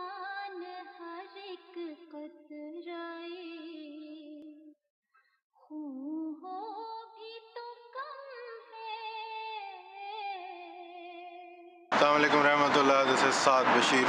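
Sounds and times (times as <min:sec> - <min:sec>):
person singing unaccompanied: 0:05.7 - 0:11.3.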